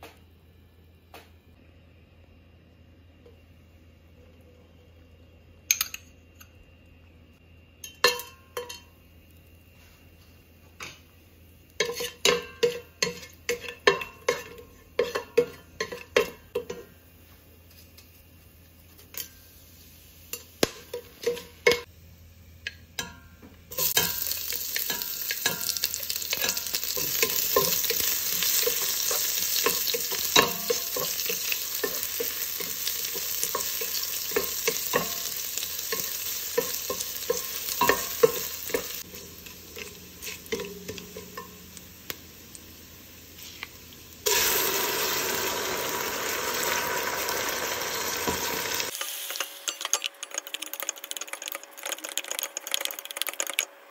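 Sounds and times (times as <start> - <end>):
onions sizzling in hot fat: 23.7 - 50.8.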